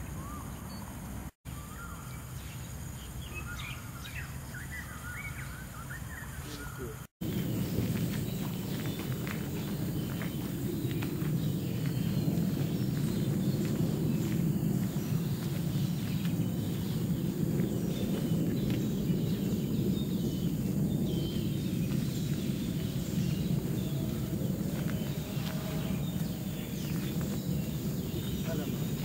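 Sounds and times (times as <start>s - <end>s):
footsteps on dirt trail: 6.6s - 29.0s
steady low rumble: 6.6s - 29.0s.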